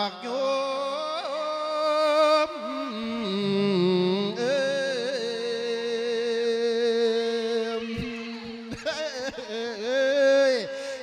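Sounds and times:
man chanting melodically: 0.0 - 11.0.

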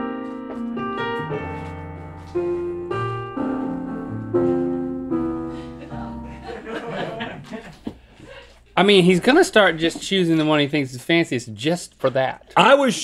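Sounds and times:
piano music: 0.0 - 7.4.

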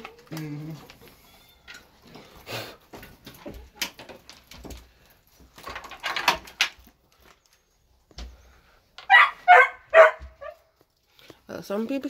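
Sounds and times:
dog barking: 9.1 - 10.6.

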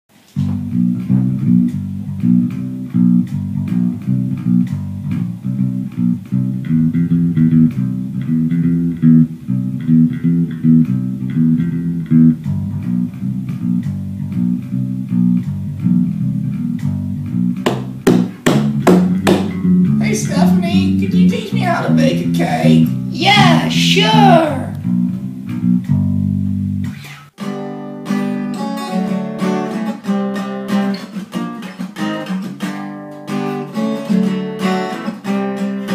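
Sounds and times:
electric guitar: 0.2 - 35.9
bass guitar line: 0.4 - 27.3
sharp drum hits: 17.7 - 19.6.

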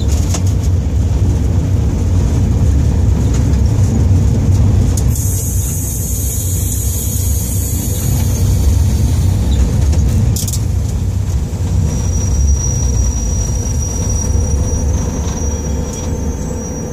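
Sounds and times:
diesel locomotive engine droning: 0.0 - 16.9
thin high whine: 11.9 - 16.9.

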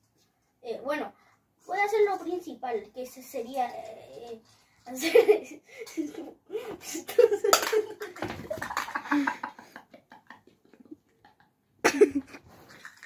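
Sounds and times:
thump on tiled floor: 8.2 - 8.8.

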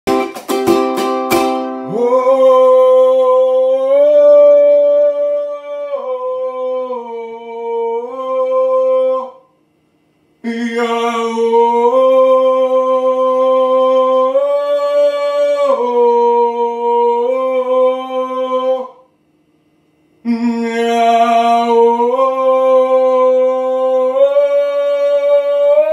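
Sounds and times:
plucked string notes: 0.1 - 2.0
person singing slow tune: 1.4 - 19.2, 20.1 - 25.9.

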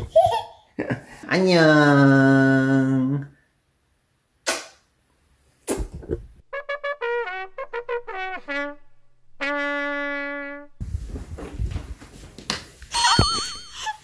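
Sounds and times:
trumpet jingle: 6.5 - 10.8.

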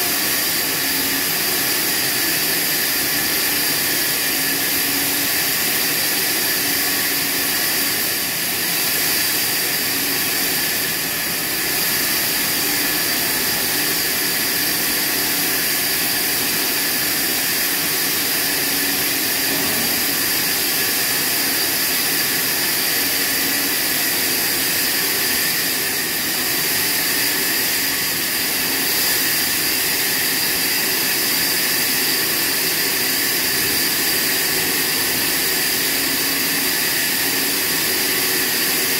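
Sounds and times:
band saw cutting log: 0.0 - 38.9.

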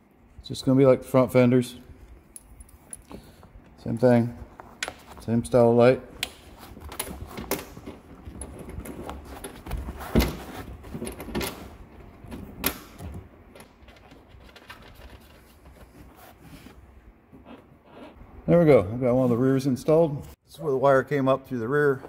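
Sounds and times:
gloves rustling: 2.1 - 12.2.

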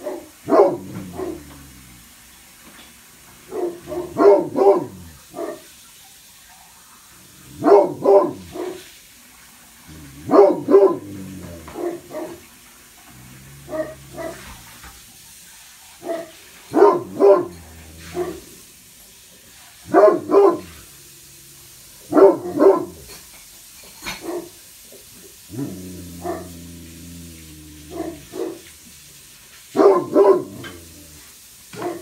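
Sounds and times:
dog barking: 0.0 - 1.6, 3.4 - 5.7, 7.5 - 8.9, 10.2 - 12.5, 13.6 - 14.7, 16.0 - 18.5, 19.8 - 20.9, 22.0 - 23.2, 24.0 - 24.6, 26.2 - 26.6, 27.9 - 28.7, 29.7 - 30.8, 31.7 - 32.0.

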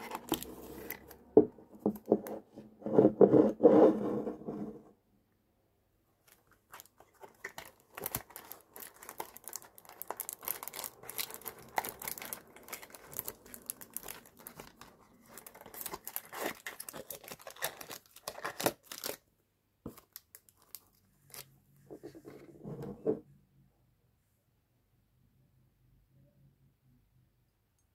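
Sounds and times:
packaging wrap crinkling: 0.0 - 1.2, 6.2 - 19.2, 19.9 - 21.5.

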